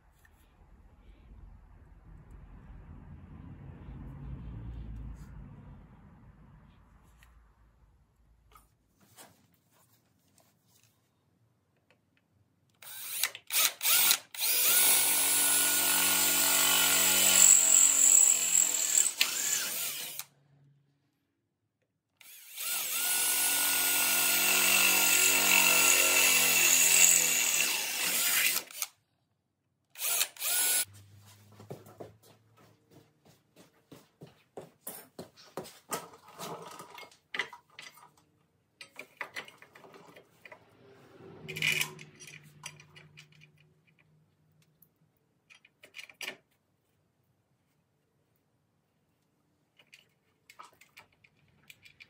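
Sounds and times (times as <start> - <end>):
cordless drill boring through steel: 12.8 - 20.3, 22.2 - 28.9, 30.0 - 30.9
metal parts clicking and tapping: 38.8 - 40.6, 41.5 - 44.2, 45.4 - 46.6, 49.8 - 52.0.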